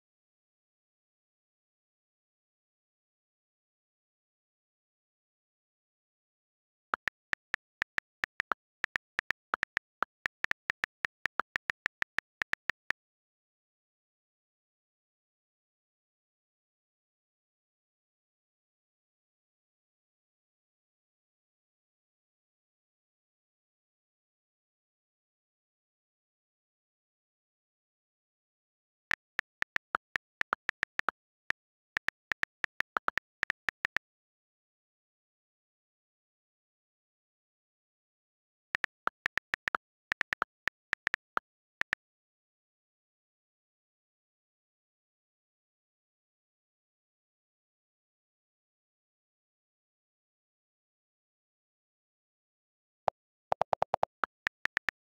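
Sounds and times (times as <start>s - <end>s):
on-screen keyboard key clicks: 7.0s - 12.9s, 29.1s - 34.0s, 38.8s - 41.8s, 53.5s - 55.0s.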